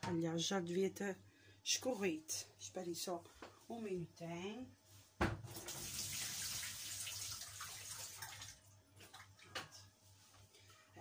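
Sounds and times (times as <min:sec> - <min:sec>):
water pouring and splashing: 0:05.5 - 0:09.6.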